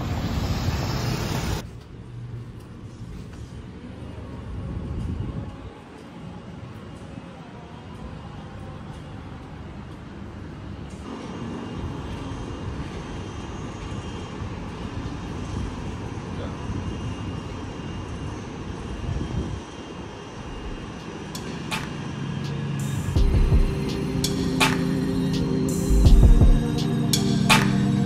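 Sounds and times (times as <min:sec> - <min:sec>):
low rumble of city traffic: 0:00.0 - 0:28.0
music: 0:22.8 - 0:28.0.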